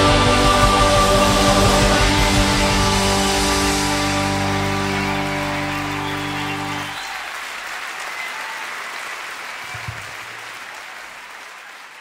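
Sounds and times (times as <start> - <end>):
choir singing: 0.0 - 7.0
audience applauding: 1.0 - 12.0.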